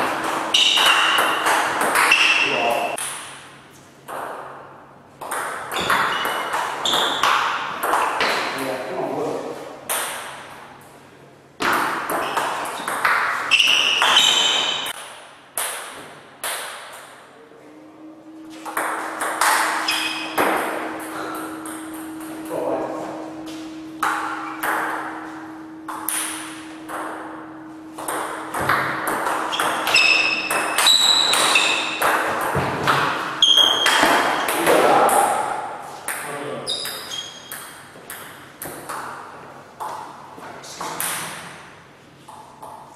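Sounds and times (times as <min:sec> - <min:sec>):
short high squeaks: 0:00.5 - 0:01.4, 0:13.4 - 0:15.0, 0:19.6 - 0:20.4, 0:29.4 - 0:32.0, 0:33.4 - 0:34.5, 0:36.6 - 0:37.5.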